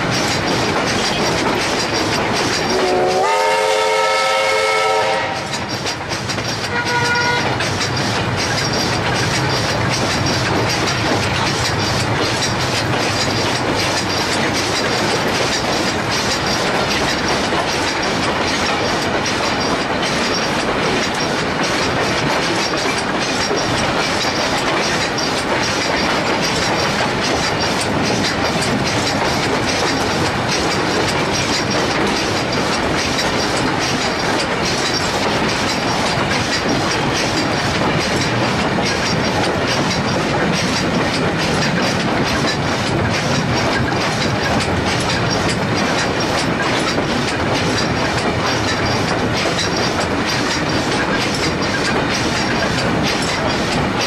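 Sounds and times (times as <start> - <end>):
rolling train noise: 0.0 - 54.0
wheels clacking over rail joints: 0.0 - 54.0
steam locomotive whistle: 2.7 - 5.5, 6.7 - 7.5.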